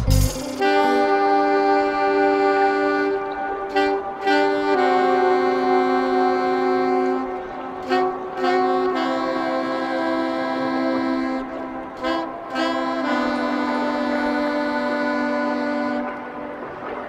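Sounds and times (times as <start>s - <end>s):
live dub band: 0.0s - 0.8s
wind instrument long notes: 0.0s - 17.0s.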